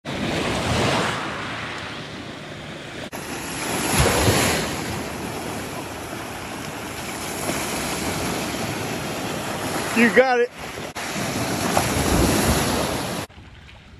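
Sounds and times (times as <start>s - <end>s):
waves breaking on gravel beach: 3.1s - 13.3s.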